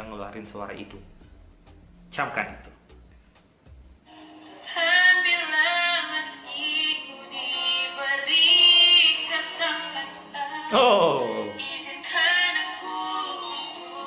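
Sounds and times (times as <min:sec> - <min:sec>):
boy singing a slow ballad: 0:04.6 - 0:14.0.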